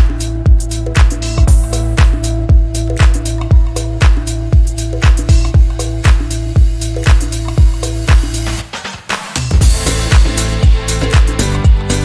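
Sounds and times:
upbeat electronic music: 0.0 - 12.0.

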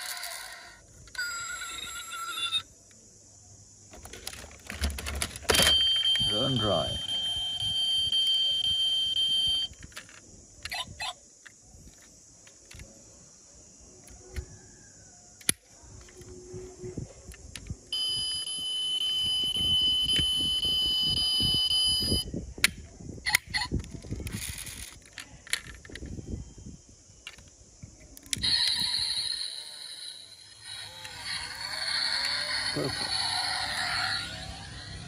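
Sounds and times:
toy car doors clicking: 0.0 - 2.6, 3.9 - 6.6, 22.6 - 26.1, 28.2 - 35.0
high electronic tone: 30.6 - 35.0.

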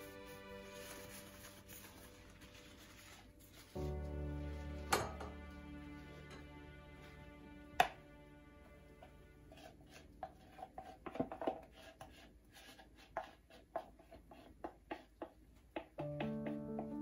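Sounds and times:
background music: 0.0 - 10.8, 16.0 - 17.0
chopsticks tapping plastic bowl: 14.6 - 17.0.

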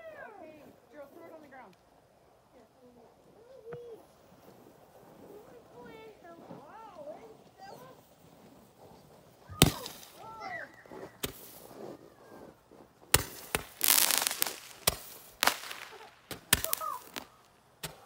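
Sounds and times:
crackling hiss: 0.5 - 18.0
firework pops: 9.5 - 11.7, 13.1 - 18.0.

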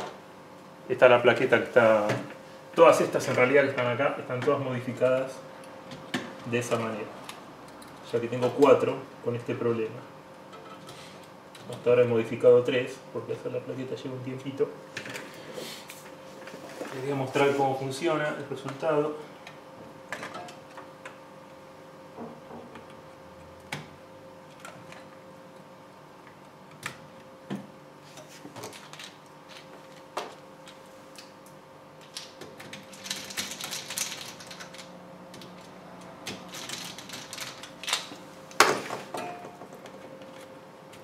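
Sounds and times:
faint steady hum: 0.0 - 41.0
cables and plastic connectors clicking: 31.2 - 38.2.

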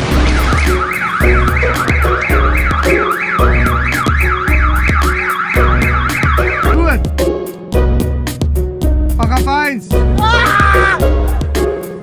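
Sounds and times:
background music with bass beat: 0.0 - 12.0
car alarm wailing: 0.1 - 7.0.

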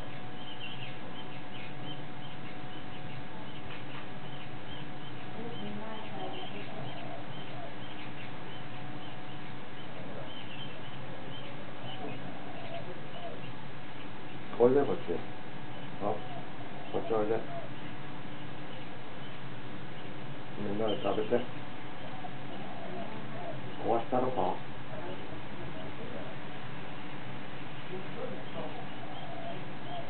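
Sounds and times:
background hiss and hum: 0.0 - 30.0
small birds chirping: 0.0 - 30.0.

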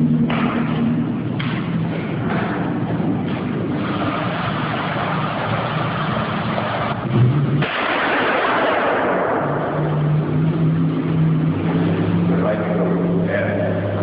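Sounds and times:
low steady hum: 0.0 - 14.0
rifle shot crack: 7.6 - 9.7.

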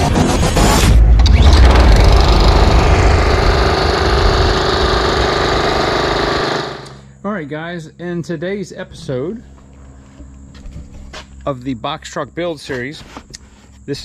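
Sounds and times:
lawn mower engine running: 1.3 - 7.0.

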